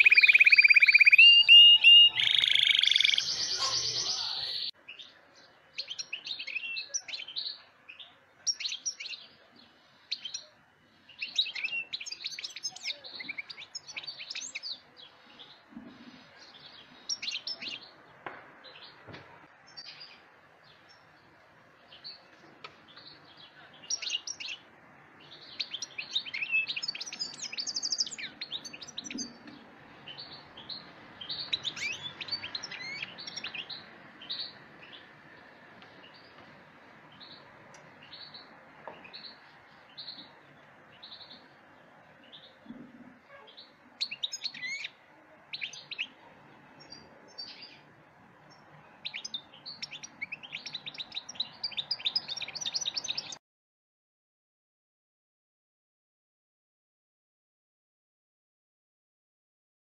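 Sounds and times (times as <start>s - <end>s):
loud high tone: 0.0s - 4.7s
bird twittering and trilling: 0.0s - 5.1s, 25.2s - 35.1s, 43.3s - 46.2s, 48.5s - 53.4s.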